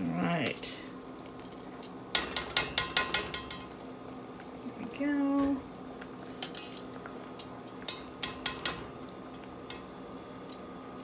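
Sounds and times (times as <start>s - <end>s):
metal tongs clinking against saucepan: 2.2s - 3.8s, 7.8s - 9.9s.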